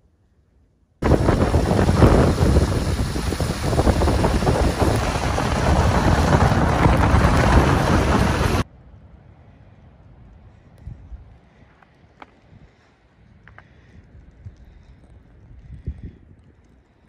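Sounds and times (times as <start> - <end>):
wind: 0.0 - 17.0
tyre and road noise: 1.0 - 8.7.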